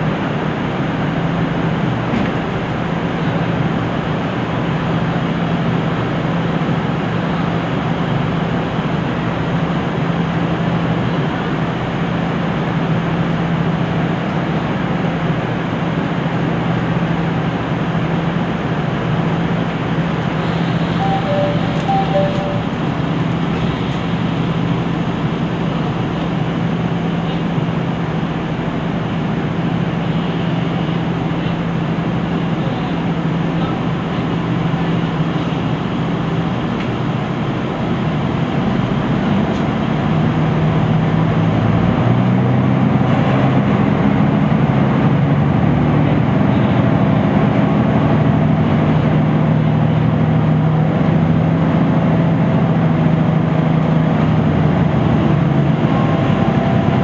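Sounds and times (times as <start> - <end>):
diesel engine idling: 0.0 - 57.0
two-note electronic tone: 20.9 - 23.0.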